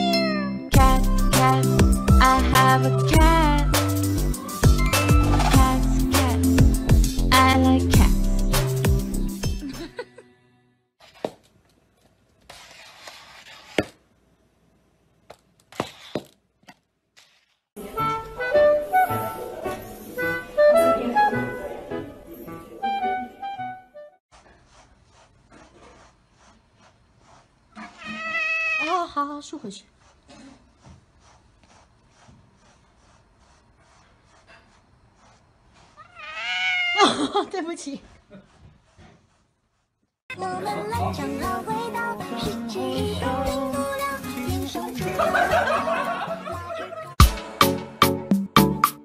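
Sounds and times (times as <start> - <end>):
brush stroking cat fur: 12.4 - 13.8, 24.3 - 40.1.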